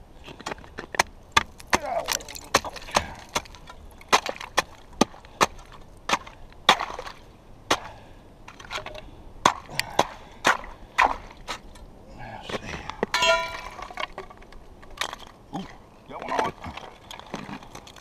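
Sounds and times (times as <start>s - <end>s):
broken ice crunching and scraping: 0.2s - 7.9s, 13.1s - 18.0s
chisel striking ice: 0.5s - 7.1s.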